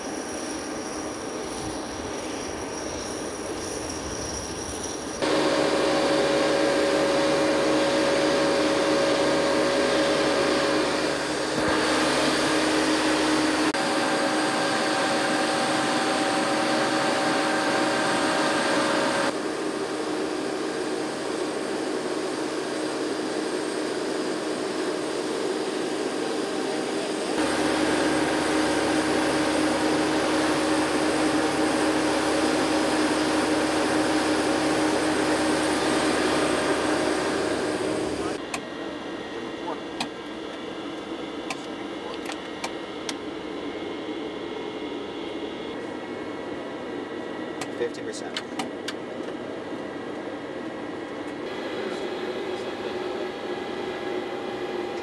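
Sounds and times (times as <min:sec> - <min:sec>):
machine hum with whining tones: 0:00.0 - 0:55.0.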